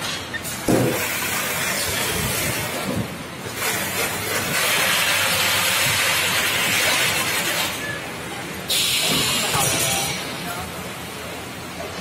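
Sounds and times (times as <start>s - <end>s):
machinery hissing: 3.5s - 11.4s.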